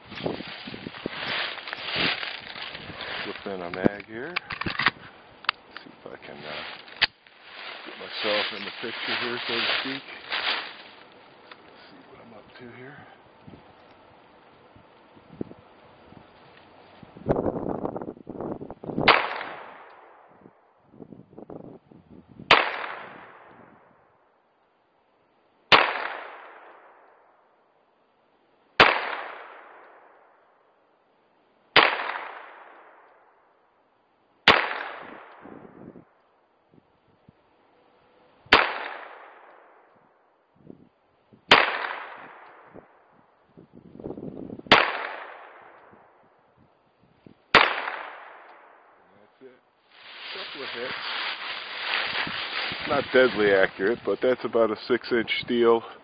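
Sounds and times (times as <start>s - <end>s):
pistol shots echoing: 44.7s - 45.7s, 47.5s - 48.5s.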